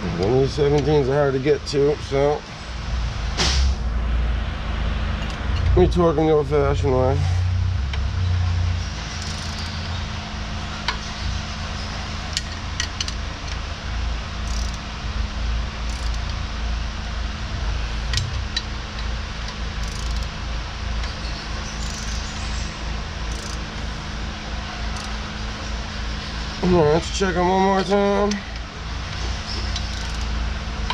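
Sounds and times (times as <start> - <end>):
shop machinery hum: 0.0 - 30.9
wrench clicking on bolts: 9.1 - 9.8, 12.3 - 13.6, 14.4 - 14.8, 15.8 - 16.4, 18.1 - 20.3, 21.8 - 22.3, 23.3 - 23.6, 24.9 - 25.2, 27.8 - 30.3.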